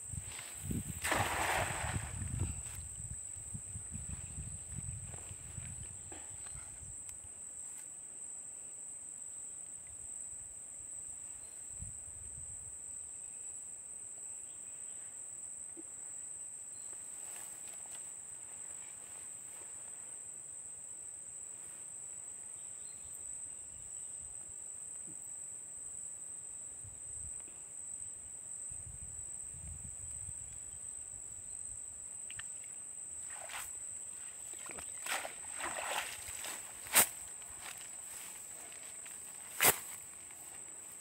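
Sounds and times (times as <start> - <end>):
insects chirring: 0.0 - 12.4, 13.0 - 41.0
net knocking on grass: 0.8 - 2.4, 34.7 - 38.8
net rustling and splashing: 0.9 - 2.3, 34.3 - 40.0.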